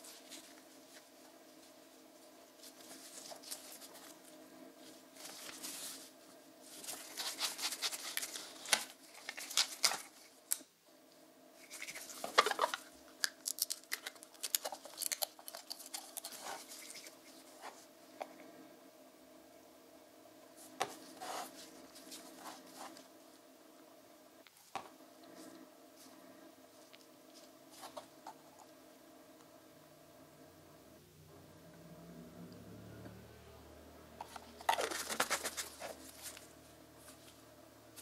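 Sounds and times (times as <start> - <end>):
objects rustling and scraping: 0.0 - 10.4, 11.6 - 12.9, 14.5 - 18.5, 20.6 - 23.2, 24.5 - 28.7, 34.2 - 37.4
faint steady hum: 0.0 - 38.0.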